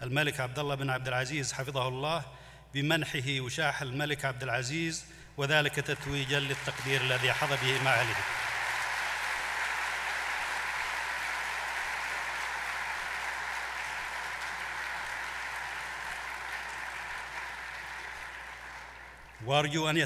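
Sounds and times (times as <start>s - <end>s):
audience applauding: 5.9s - 19.5s.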